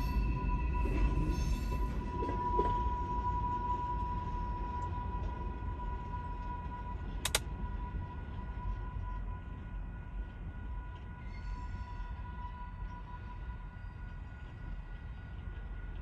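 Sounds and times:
train rumbling by: 0:00.0 - 0:16.0
sharp double click: 0:07.2 - 0:07.4.

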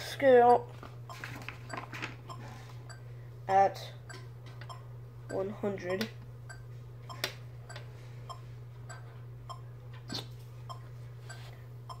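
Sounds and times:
metronome ticking: 0:00.3 - 0:03.0, 0:04.1 - 0:05.5, 0:06.4 - 0:09.7, 0:10.7 - 0:12.0.

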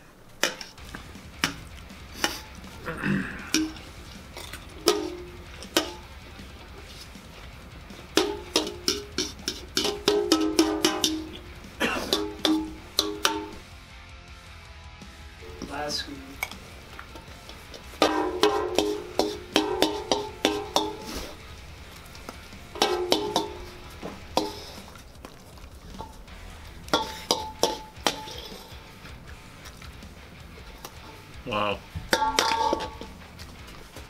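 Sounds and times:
metal spoon scraping steel bowl: 0:03.6 - 0:06.2, 0:08.0 - 0:11.5, 0:16.4 - 0:21.6, 0:22.7 - 0:25.0, 0:26.9 - 0:29.2, 0:32.1 - 0:33.2.

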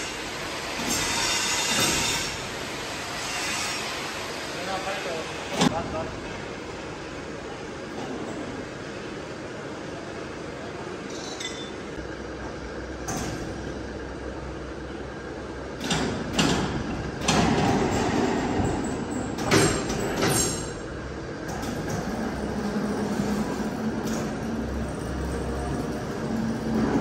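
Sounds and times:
steady machinery noise: 0:00.0 - 0:09.7, 0:15.2 - 0:27.0.

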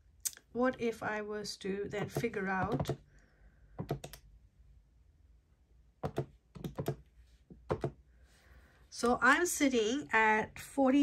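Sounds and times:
keypad keys clicking: 0:02.0 - 0:03.0, 0:03.8 - 0:04.2, 0:06.0 - 0:07.0, 0:07.7 - 0:08.0.

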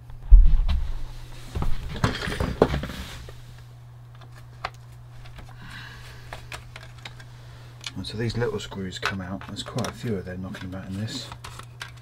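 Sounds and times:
steady low hum: 0:00.0 - 0:12.0
clicks and rustling: 0:06.3 - 0:08.0.

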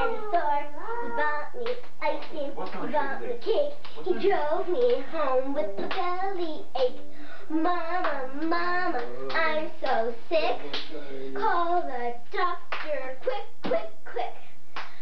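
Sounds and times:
girls chanting a rhyme: 0:00.0 - 0:10.8, 0:11.4 - 0:14.4
hands slapping together: 0:14.8 - 0:15.0.

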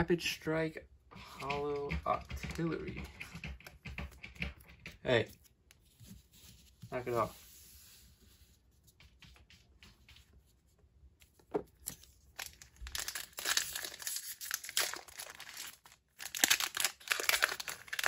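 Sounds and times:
foil wrapper crinkling: 0:11.8 - 0:18.0.

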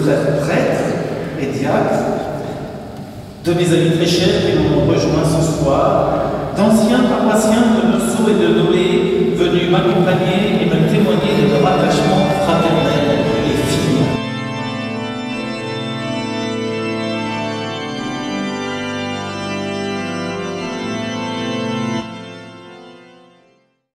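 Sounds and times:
organ playing sustained chords: 0:00.0 - 0:23.9
loud noisy burst: 0:00.7 - 0:14.2.

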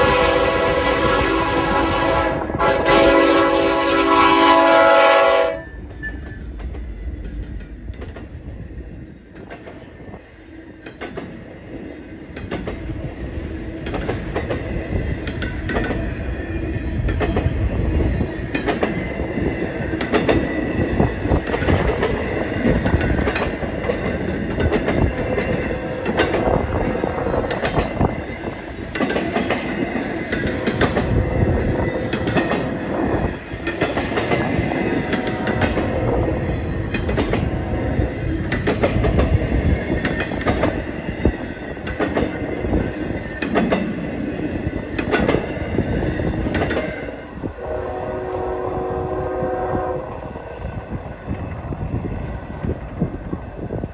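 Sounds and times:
freight train wheels clanking: 0:05.2 - 0:47.5.

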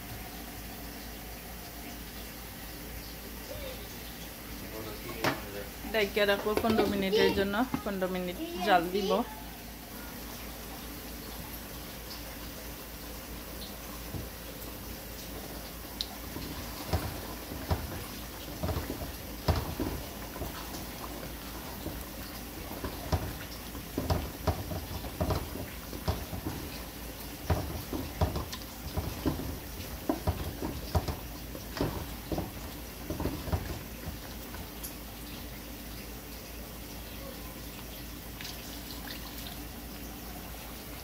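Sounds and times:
spatula knocking and scraping pot: 0:06.3 - 0:08.0, 0:16.3 - 0:34.8.

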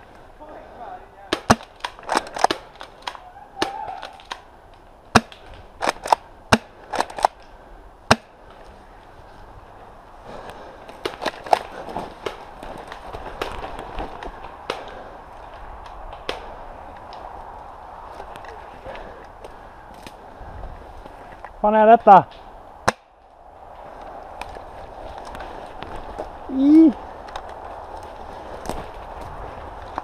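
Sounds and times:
rustling of undergrowth: 0:00.0 - 0:30.0
airsoft gunfire pops: 0:01.3 - 0:04.4, 0:05.1 - 0:07.3
twigs snapping: 0:01.3 - 0:08.8, 0:10.8 - 0:17.4, 0:18.0 - 0:20.2, 0:27.2 - 0:30.0.

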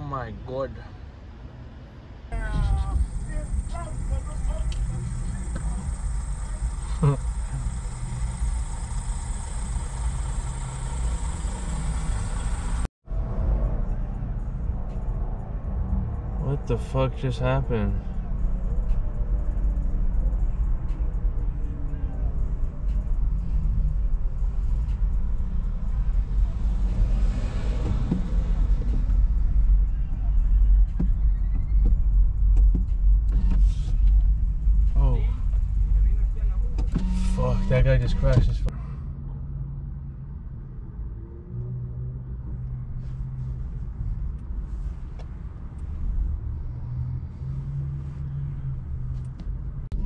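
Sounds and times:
engine and road rumble: 0:00.0 - 0:50.0
low hum: 0:01.0 - 0:41.1
car cabin rumble: 0:02.4 - 0:12.9.

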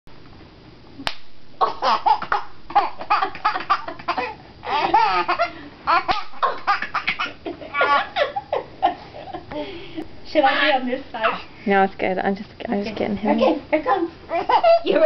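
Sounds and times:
baby laughing: 0:01.6 - 0:08.7, 0:14.3 - 0:15.0.

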